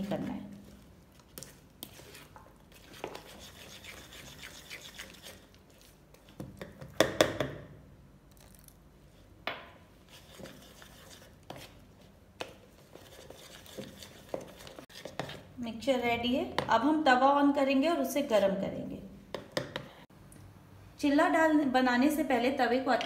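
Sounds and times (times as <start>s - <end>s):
spoon stirring batter in bowl: 0.0s - 7.4s, 9.9s - 15.6s.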